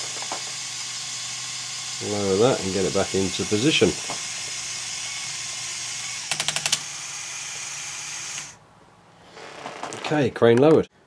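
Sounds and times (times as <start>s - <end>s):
toy motor and gears whirring: 0.0s - 8.6s
quick run of clicks: 6.2s - 6.8s.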